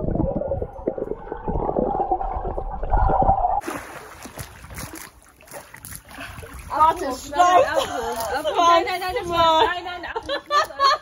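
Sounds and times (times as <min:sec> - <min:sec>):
muffled underwater bubbling: 0:00.0 - 0:03.6
water splashing: 0:00.0 - 0:08.1.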